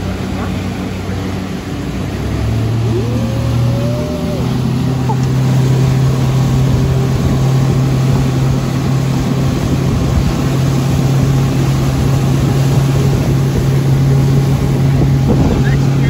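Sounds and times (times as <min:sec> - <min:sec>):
churning wake water: 0:00.0 - 0:16.0
outboard motor running: 0:00.0 - 0:16.0
wind: 0:00.0 - 0:16.0.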